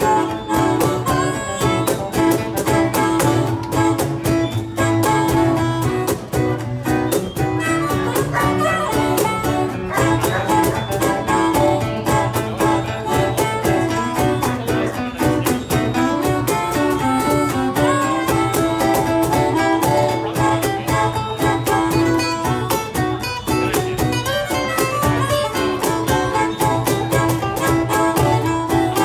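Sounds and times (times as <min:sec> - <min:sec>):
bass guitar: 0:00.0 - 0:29.0
drum kit steady beat: 0:00.0 - 0:29.0
harmonica melody: 0:00.0 - 0:29.0
strummed acoustic guitar: 0:00.0 - 0:29.0.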